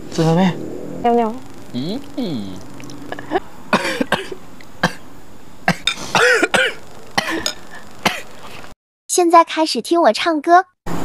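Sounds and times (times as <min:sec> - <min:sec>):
person coughing: 0:03.1 - 0:05.0, 0:05.7 - 0:08.3
throat clearing: 0:03.1 - 0:05.0, 0:05.7 - 0:08.3.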